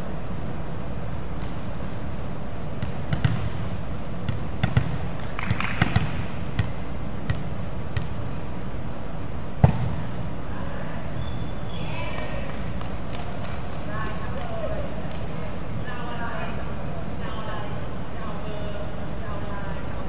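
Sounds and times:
low background hum: 0:00.0 - 0:20.0
volleyball smacks and thuds: 0:02.8 - 0:03.6, 0:04.2 - 0:08.2, 0:09.6 - 0:10.1.

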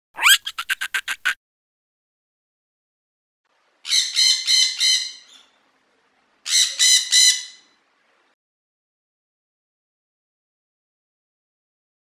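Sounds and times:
high-pitched animal squawks: 0:00.2 - 0:01.4.

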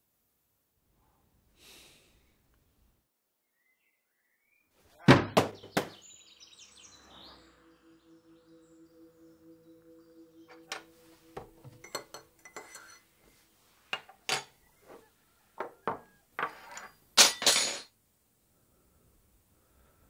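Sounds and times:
dishes and cutlery clinking: 0:10.6 - 0:13.3, 0:13.9 - 0:14.7, 0:15.6 - 0:17.9.

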